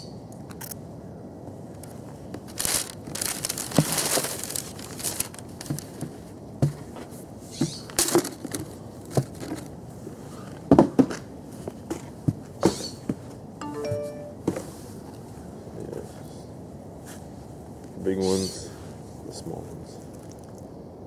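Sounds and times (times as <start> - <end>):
tissue paper rustling: 2.4 - 6.0.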